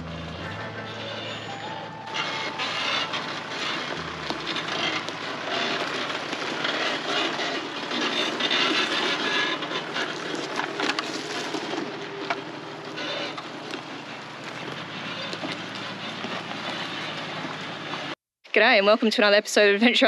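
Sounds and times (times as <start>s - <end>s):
engine and tyre rumble: 0.0s - 18.2s
stones cracking under tyres: 2.2s - 18.1s.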